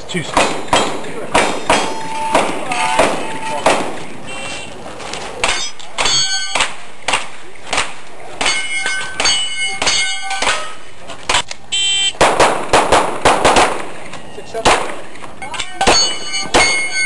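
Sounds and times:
ring of steel targets: 0:00.3 - 0:03.9, 0:05.4 - 0:06.8, 0:08.4 - 0:10.8, 0:15.5 - 0:17.0
pistol shots: 0:00.3 - 0:04.0, 0:12.2 - 0:14.0, 0:14.6 - 0:15.0, 0:15.8 - 0:17.0.

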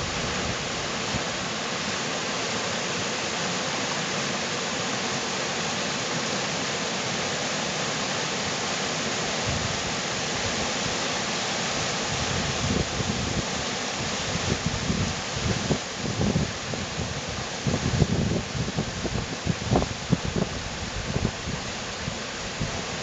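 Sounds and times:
wind buffeting microphone: 0:00.0 - 0:01.3, 0:12.1 - 0:23.0
river rapids rushing: 0:00.0 - 0:23.0.

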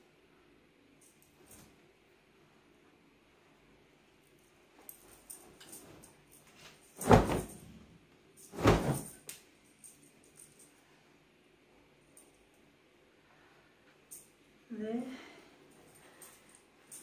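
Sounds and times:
cloth rustling: 0:04.9 - 0:07.7, 0:08.4 - 0:09.3
fabric flapping: 0:06.9 - 0:07.7, 0:08.5 - 0:09.3.

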